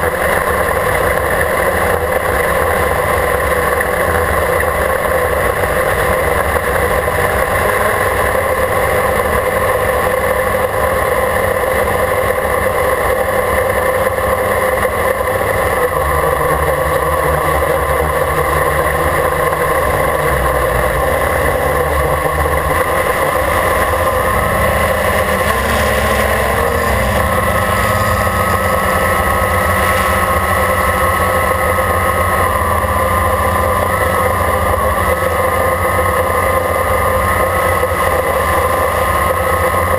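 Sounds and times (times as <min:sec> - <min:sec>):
drone propellers whining: 0:14.2 - 0:39.9.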